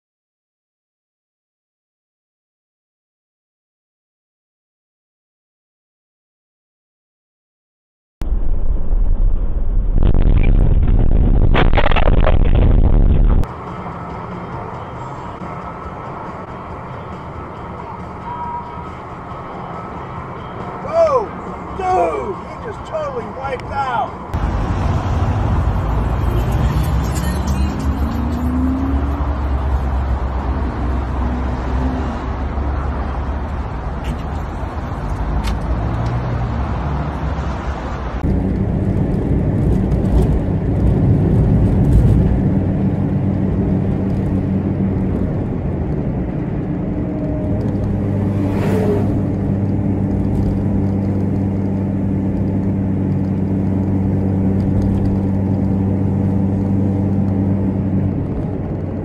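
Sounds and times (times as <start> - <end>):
car engine running inside cabin: 9.6 - 16.3, 38.2 - 59.0
motorway traffic: 11.6 - 59.0.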